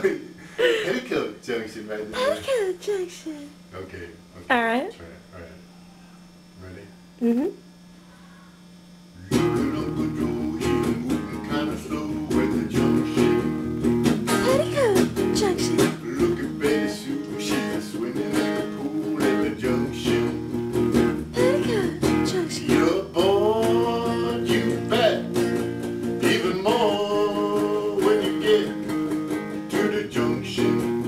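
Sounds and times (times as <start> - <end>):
electric guitar strumming: 9.2 - 31.0.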